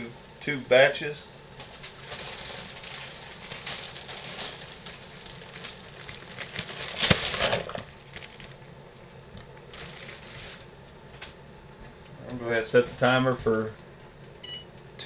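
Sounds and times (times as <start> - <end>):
wax paper crinkling: 1.5 - 11.2.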